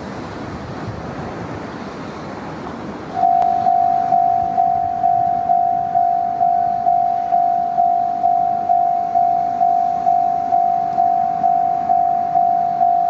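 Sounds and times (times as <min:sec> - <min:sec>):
level crossing warning bell: 0:03.2 - 0:13.0.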